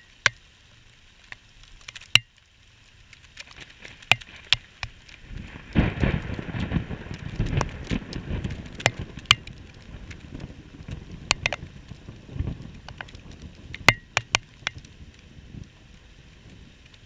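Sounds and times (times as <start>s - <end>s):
raindrops ticking on camera housing: 0.0s - 17.0s
low rumble of storm: 3.8s - 17.0s.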